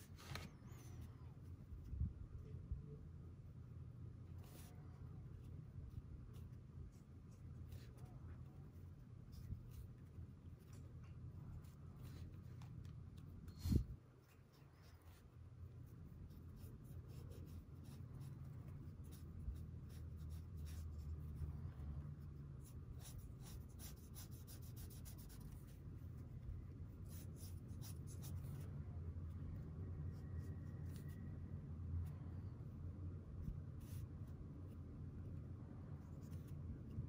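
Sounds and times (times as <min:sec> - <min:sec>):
low steady hum: 0:00.0 - 0:37.0
brush pen scratching on paper: 0:04.3 - 0:28.8.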